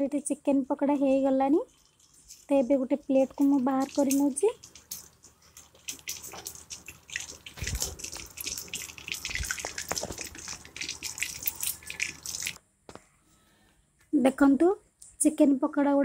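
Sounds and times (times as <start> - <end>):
food deep-frying in oil: 0.7 - 12.6.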